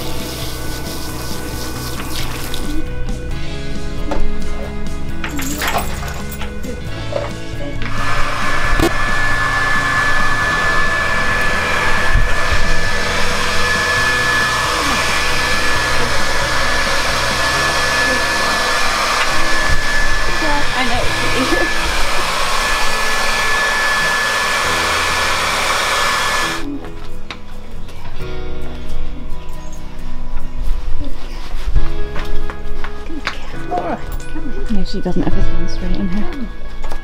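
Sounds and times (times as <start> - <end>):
hair dryer blowing: 7.1 - 26.7.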